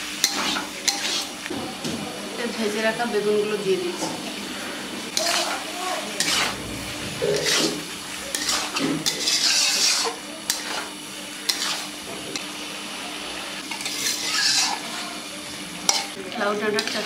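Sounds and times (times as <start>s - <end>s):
frying sizzle: 0.0s - 17.0s
spatula scraping a pan: 0.2s - 1.4s, 5.1s - 12.0s, 13.6s - 15.1s, 15.9s - 16.2s, 16.8s - 17.0s.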